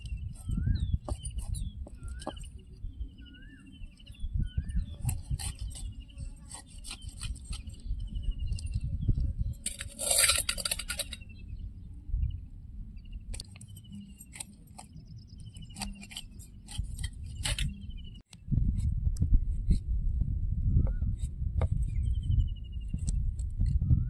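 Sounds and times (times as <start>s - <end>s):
knife scraping fish: 5.0s - 7.9s, 9.6s - 11.2s, 15.5s - 17.8s.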